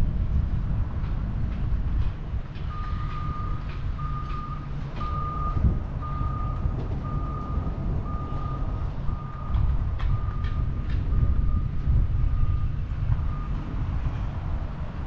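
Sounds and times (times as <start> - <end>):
road and wind noise: 0.0 - 15.0
reversing alarm beeping: 2.7 - 13.6.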